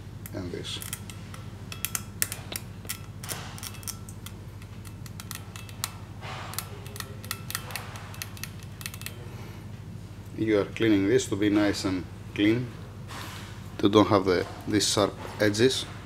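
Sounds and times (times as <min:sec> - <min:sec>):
steady low hum: 0:00.0 - 0:16.0
hand tool clicking on metal: 0:00.2 - 0:09.2.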